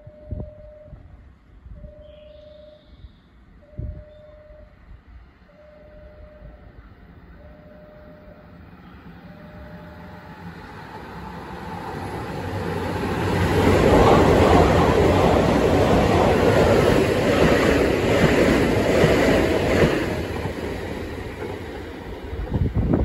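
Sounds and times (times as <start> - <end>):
electric train rumbling past: 0.0 - 23.0
repeated beep: 3.6 - 4.7.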